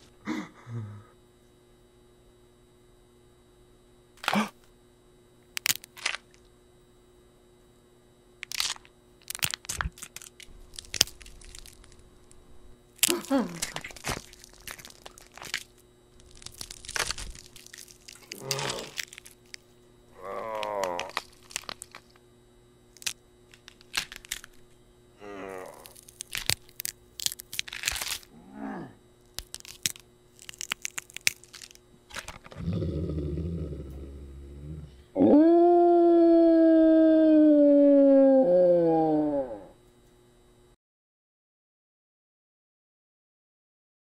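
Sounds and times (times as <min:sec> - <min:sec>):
cracking and snapping: 0:05.5 - 0:06.4, 0:08.4 - 0:12.4, 0:13.0 - 0:19.7, 0:20.4 - 0:22.2, 0:22.9 - 0:24.6, 0:25.6 - 0:28.3, 0:29.2 - 0:32.6
low growl: 0:18.3 - 0:19.0, 0:20.1 - 0:21.2, 0:25.2 - 0:26.0, 0:28.3 - 0:29.0, 0:32.5 - 0:39.8
wolf-like howl: 0:20.2 - 0:21.1, 0:28.3 - 0:29.0, 0:32.6 - 0:39.8.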